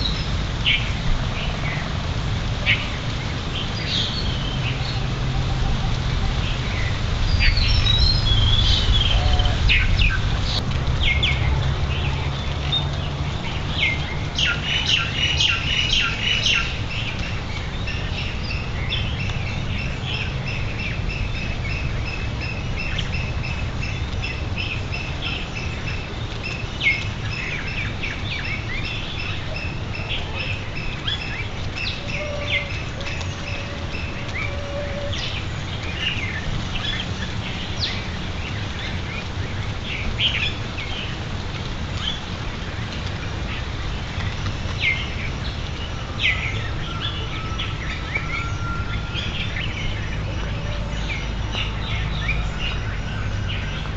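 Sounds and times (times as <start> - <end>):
low steady rumble: 0.0 - 53.9
wild birds calling and chirping: 2.7 - 41.2, 42.0 - 53.9.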